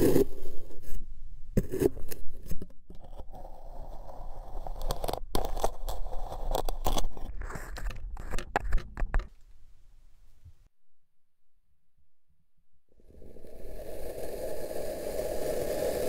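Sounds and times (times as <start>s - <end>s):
blade cutting grainy sand: 0.0s - 1.0s, 13.2s - 16.0s.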